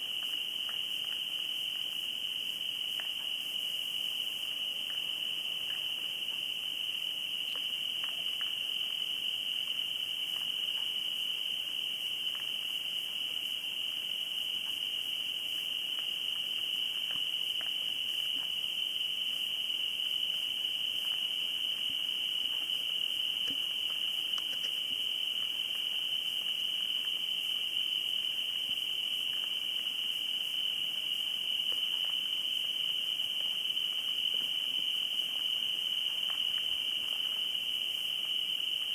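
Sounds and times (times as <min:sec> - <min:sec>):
crickets trilling: 0:00.0 - 0:38.9
faint ticks: 0:23.4 - 0:25.5.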